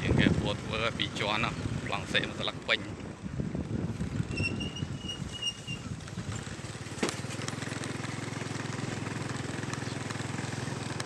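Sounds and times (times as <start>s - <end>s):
motorcycle engine running: 0.0s - 11.0s
thin high whistle-like tone: 4.3s - 5.8s.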